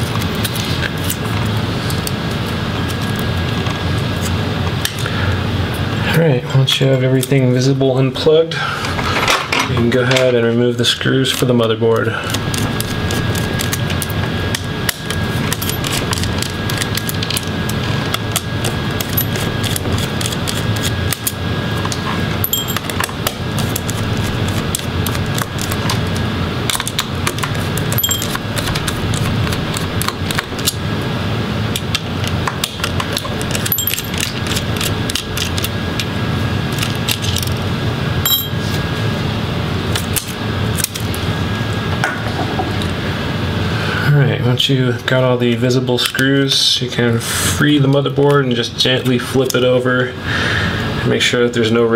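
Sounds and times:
background hum: 0:00.0 - 0:51.9.

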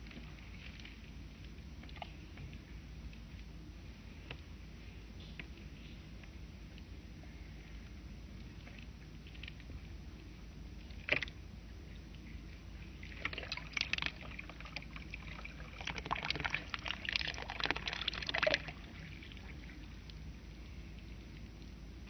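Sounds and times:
water trickling onto soil: 0:13.0 - 0:20.3.

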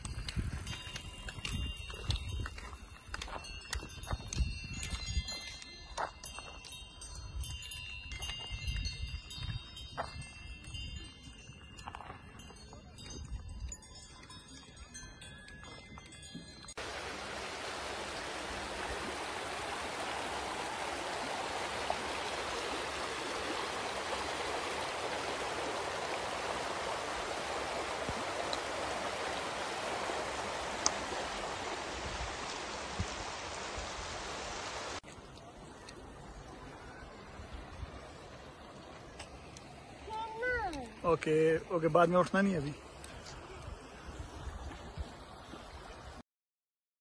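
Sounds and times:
faint bell-like ringing: 0:00.0 - 0:16.9
mountain stream rushing over stones: 0:16.7 - 0:36.2.

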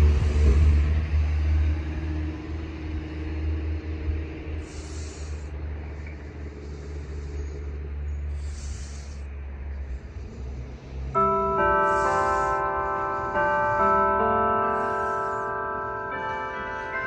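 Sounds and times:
road vehicle passing: 0:00.0 - 0:17.0
church bells ringing faintly: 0:11.0 - 0:17.0.

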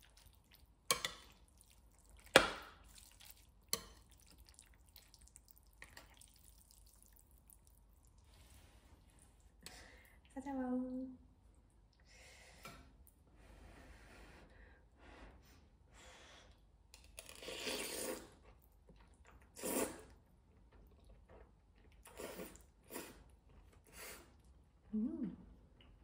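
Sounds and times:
slurping noodles: 0:17.2 - 0:18.4, 0:19.4 - 0:20.2, 0:22.0 - 0:24.5.

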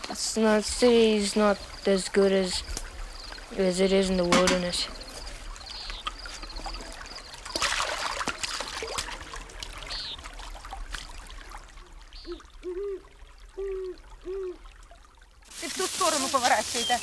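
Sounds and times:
water splashing: 0:00.0 - 0:17.0
water trickling and lapping: 0:00.0 - 0:17.0
low hooting calls: 0:11.4 - 0:14.8.

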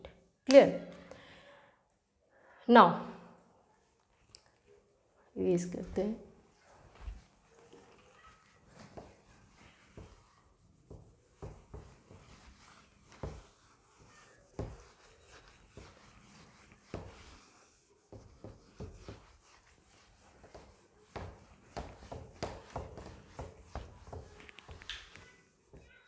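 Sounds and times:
eraser wiping whiteboard: 0:06.9 - 0:25.9.

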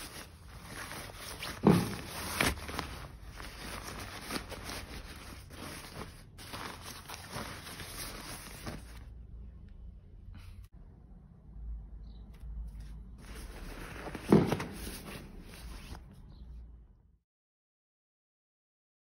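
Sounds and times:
stiff jacket fabric rustling: 0:00.0 - 0:09.1.

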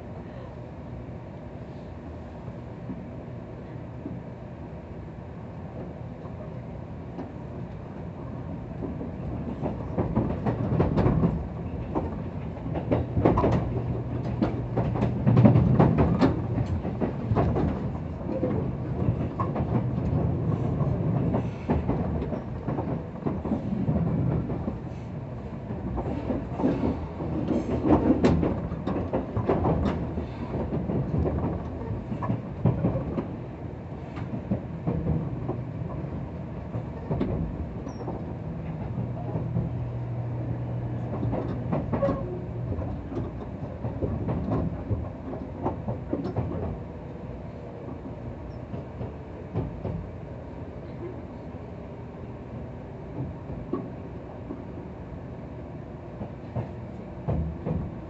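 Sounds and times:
train rumble: 0:00.0 - 0:58.0
wheels clacking over rail joints: 0:08.8 - 0:33.4, 0:34.0 - 0:46.9.

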